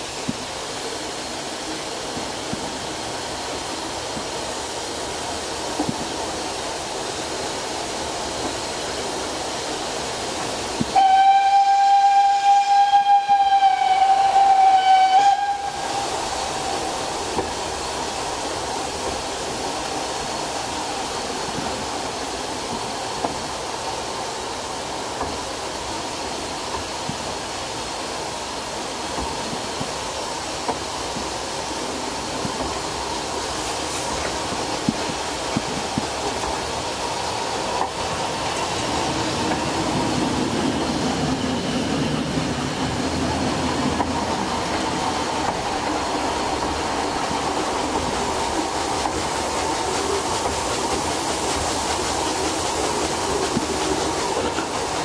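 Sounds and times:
train running noise: 0:00.0 - 0:55.0
steam locomotive whistle blast: 0:10.9 - 0:16.9.

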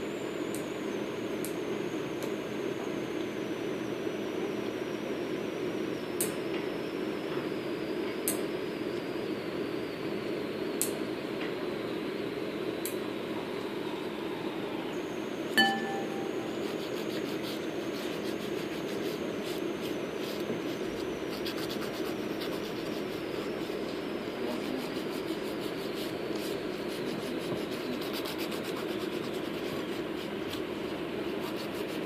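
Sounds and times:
low background hum: 0:00.0 - 0:32.0
gloved fingers rubbing nails: 0:16.6 - 0:23.8, 0:24.6 - 0:30.4, 0:31.3 - 0:32.0.

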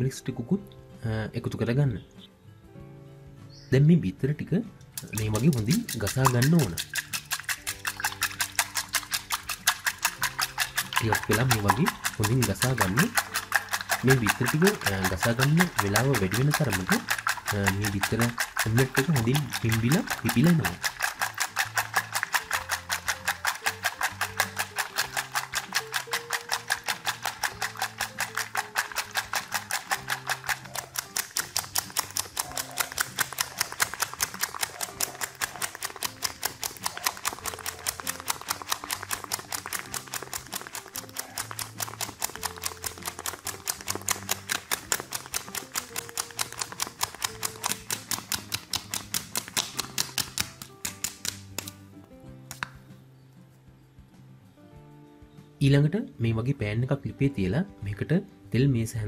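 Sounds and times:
whisk clicking against metal bowl: 0:04.9 - 0:51.8.

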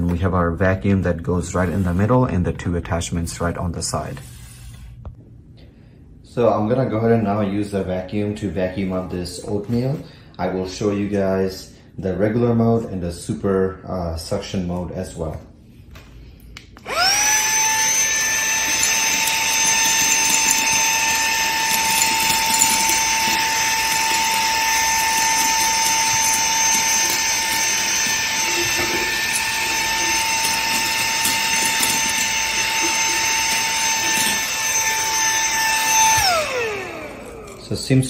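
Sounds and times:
handheld vacuum whining: 0:16.8 - 0:38.0.

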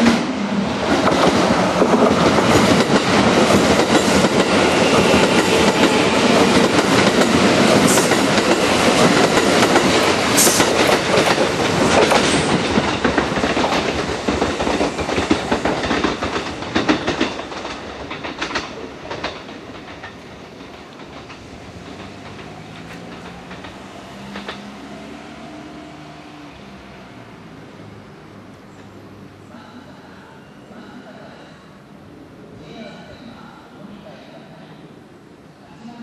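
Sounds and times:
train rushing past: 0:00.0 - 0:35.9
wheels clattering over rail joints: 0:06.5 - 0:24.9.

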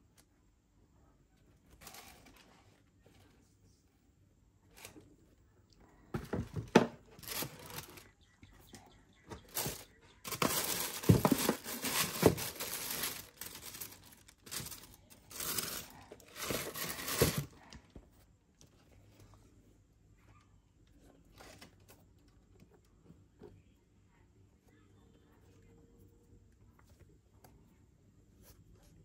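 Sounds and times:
tissue paper crinkling: 0:07.2 - 0:08.1, 0:09.5 - 0:17.6.

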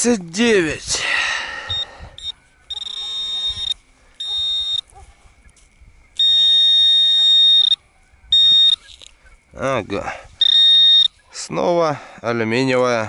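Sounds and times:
metal detector buzzy tone: 0:01.7 - 0:05.0, 0:06.2 - 0:07.8, 0:08.4 - 0:09.0, 0:10.4 - 0:11.2.

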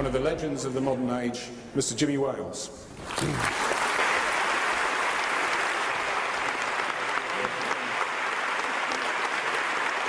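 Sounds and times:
large audience applauding: 0:03.0 - 0:10.0.

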